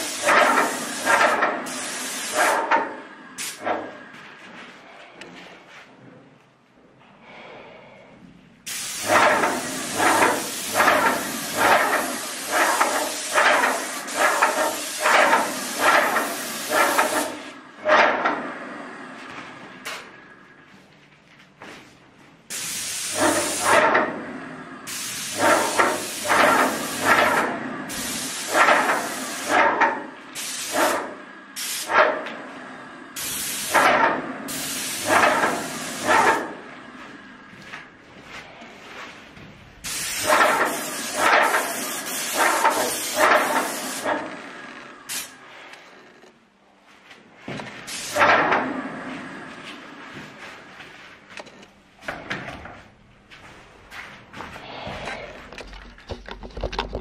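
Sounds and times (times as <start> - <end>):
paint spray gun hissing: 0.0 - 2.6, 3.4 - 3.6, 8.7 - 17.6, 22.5 - 23.9, 24.9 - 29.7, 30.3 - 31.0, 31.6 - 31.9, 33.2 - 33.9, 34.5 - 36.6, 39.8 - 44.3, 45.1 - 45.4.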